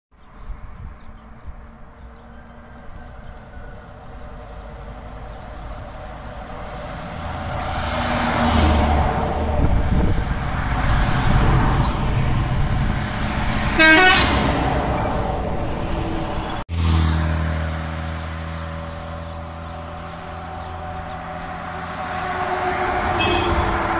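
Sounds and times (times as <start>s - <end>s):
trucks passing: 0.2s - 23.9s
truck horn toot: 13.8s - 14.5s, 22.6s - 23.9s.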